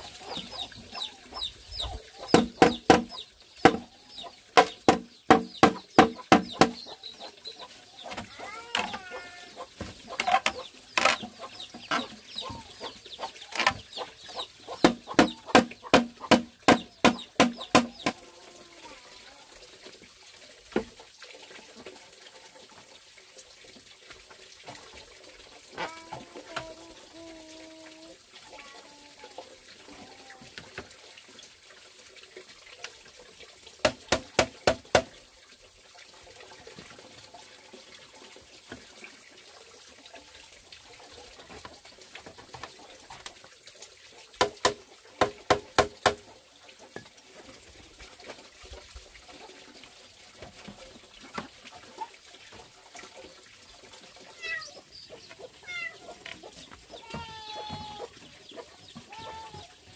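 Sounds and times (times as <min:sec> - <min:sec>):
chickens clucking: 0:00.0 - 0:18.6, 0:54.2 - 0:59.9
hollow knocks pounding bamboo posts: 0:02.3 - 0:03.9, 0:04.6 - 0:06.8, 0:14.8 - 0:18.2, 0:33.8 - 0:35.2, 0:44.4 - 0:46.3.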